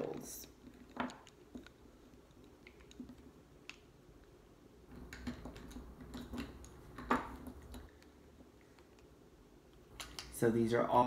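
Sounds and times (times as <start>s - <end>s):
wax candles clicking together: 9.7s - 10.4s.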